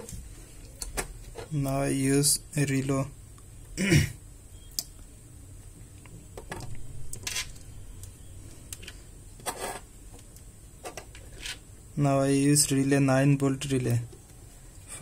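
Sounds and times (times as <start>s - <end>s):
faint clicks and rustles of handling: 4.9s - 11.7s.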